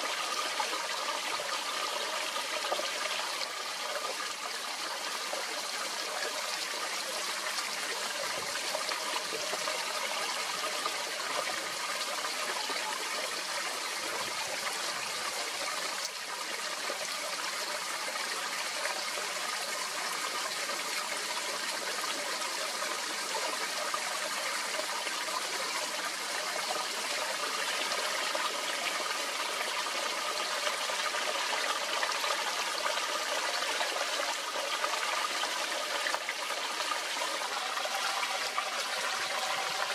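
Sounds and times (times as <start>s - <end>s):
stream trickling over stones: 0.0s - 39.9s.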